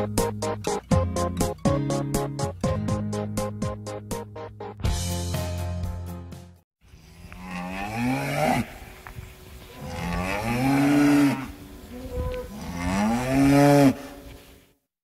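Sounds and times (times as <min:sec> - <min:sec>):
cow mooing: 0:07.3 - 0:08.9, 0:09.7 - 0:14.2.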